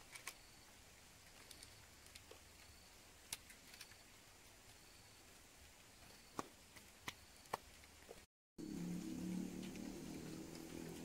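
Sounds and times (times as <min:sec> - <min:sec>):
steady low hum: 0:08.6 - 0:11.0.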